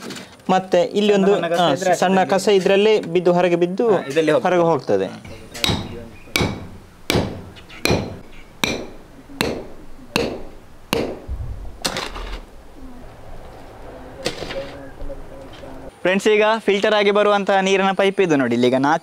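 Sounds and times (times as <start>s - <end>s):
hand hammer striking metal: 5.3s - 12.0s.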